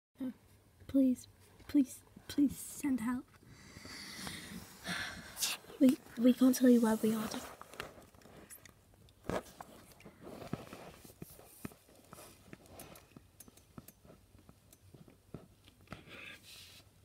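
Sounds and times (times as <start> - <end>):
faint rustling: 5.5 - 13.2.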